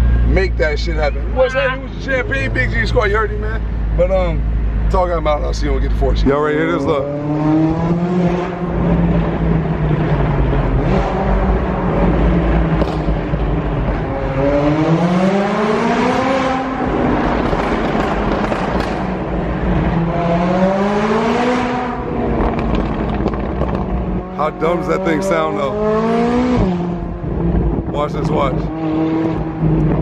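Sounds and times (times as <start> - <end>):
car engine revving in tunnel: 6.3 - 30.0.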